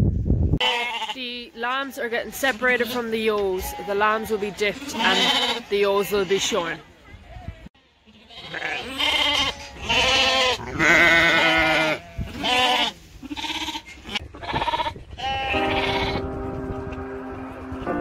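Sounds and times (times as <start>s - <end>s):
sheep and lambs bleating: 0.6s - 1.4s, 2.6s - 6.8s, 7.9s - 16.4s
music: 15.5s - 18.0s.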